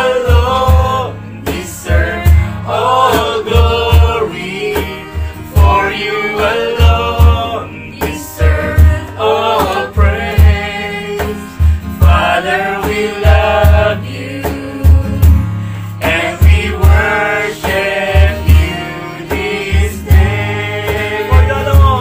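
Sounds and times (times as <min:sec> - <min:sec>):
group singing worship song: 0:00.0 - 0:22.0
strummed acoustic guitar: 0:00.0 - 0:22.0
low pulse on the beat: 0:13.1 - 0:22.0.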